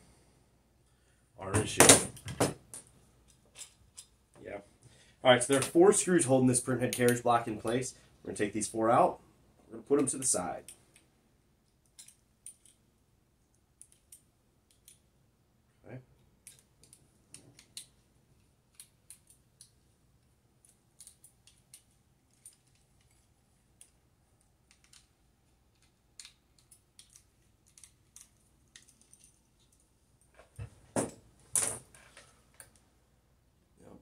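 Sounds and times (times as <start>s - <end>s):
small metal clicks and taps: 11.7s - 12.8s, 13.8s - 15.1s, 18.7s - 19.8s, 24.6s - 29.8s.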